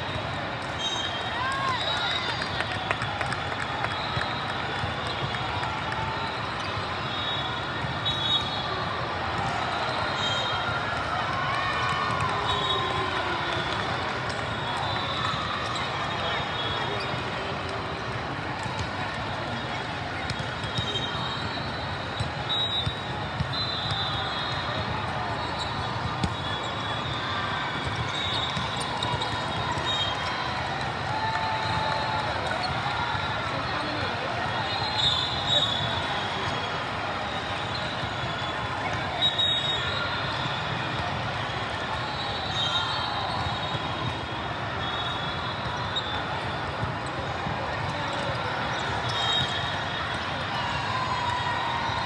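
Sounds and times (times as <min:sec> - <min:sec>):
crowd chatter: 0:00.0 - 0:52.0
sneakers squeaking on court: 0:19.6 - 0:27.2.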